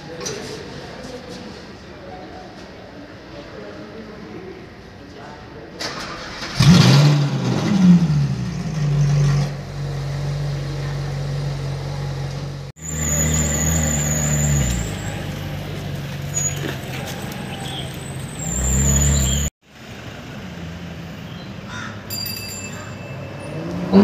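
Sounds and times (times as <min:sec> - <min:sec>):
car engine revving and idling: 0:06.0 - 0:21.4, 0:23.4 - 0:24.0.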